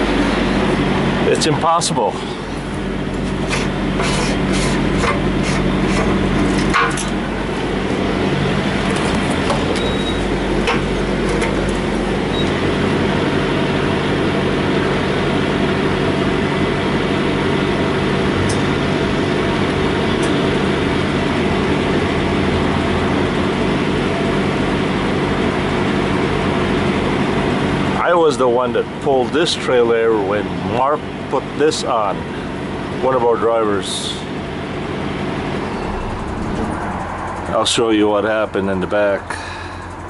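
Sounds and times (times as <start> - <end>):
diesel truck engine idling: 0.0 - 40.0.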